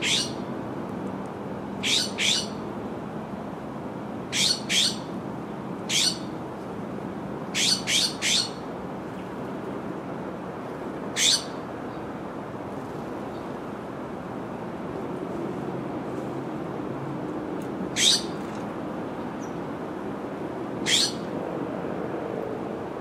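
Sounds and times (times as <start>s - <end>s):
sparrow chip calls: 0.0s - 0.4s, 1.8s - 2.6s, 4.3s - 5.1s, 5.9s - 6.3s, 7.6s - 8.6s, 11.2s - 11.6s, 18.0s - 18.4s, 20.9s - 21.2s.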